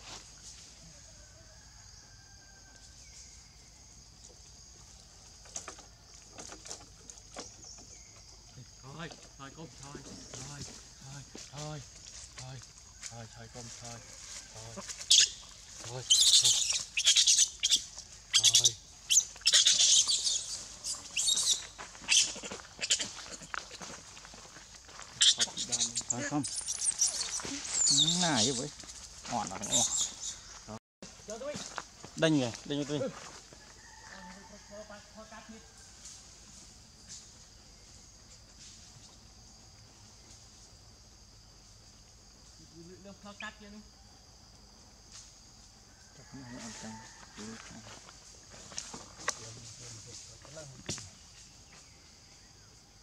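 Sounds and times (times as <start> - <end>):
insects droning: 0.0 - 53.0
rustling dry leaves: 11.5 - 30.5
monkeys screaming: 15.0 - 15.4, 16.0 - 23.9, 25.2 - 28.6
lower wavering monkey call: 15.0 - 23.2.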